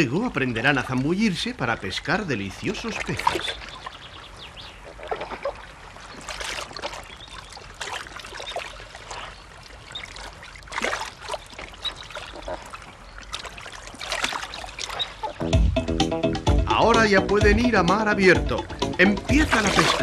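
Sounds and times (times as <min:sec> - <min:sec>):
sea water trickling among rocks: 0:00.0 - 0:15.4
small water splashes: 0:00.0 - 0:15.5, 0:19.3 - 0:20.0.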